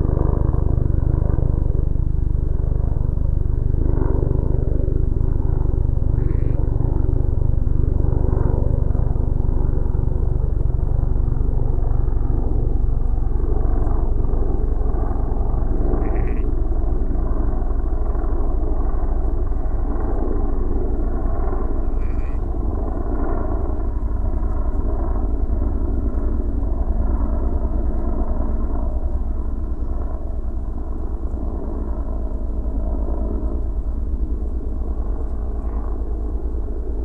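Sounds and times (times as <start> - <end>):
low rumble: 0.0 - 26.3
engine drone: 0.0 - 37.0.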